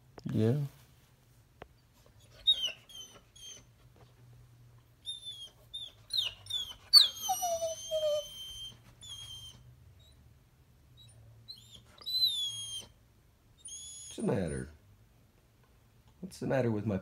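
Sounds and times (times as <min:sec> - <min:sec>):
dog whining: 0:02.2 - 0:03.8, 0:05.0 - 0:10.2, 0:11.0 - 0:13.0, 0:13.6 - 0:14.8.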